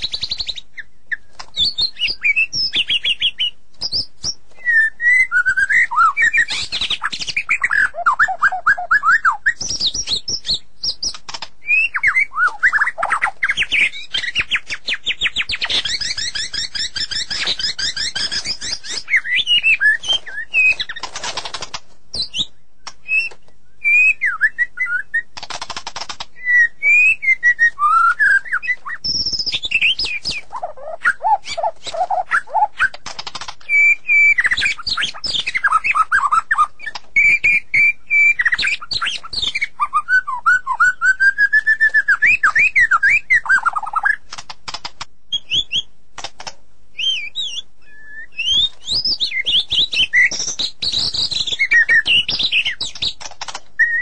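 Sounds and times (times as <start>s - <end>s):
songbird singing: 0.0s - 44.2s, 45.3s - 46.0s, 46.9s - 54.0s
sharp clicks: 9.6s - 11.6s, 20.0s - 23.6s, 25.4s - 26.4s, 32.8s - 33.8s, 44.1s - 45.1s, 46.2s - 46.6s, 48.9s - 53.8s
harsh raspy bird calls: 27.8s - 37.3s.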